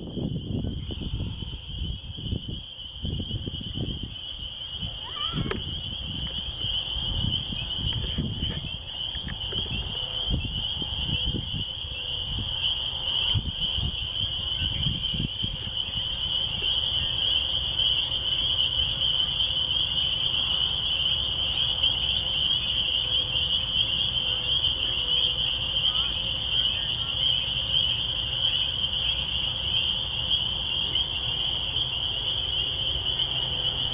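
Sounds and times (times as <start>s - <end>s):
chorus of frogs peeping: 0.0s - 33.9s.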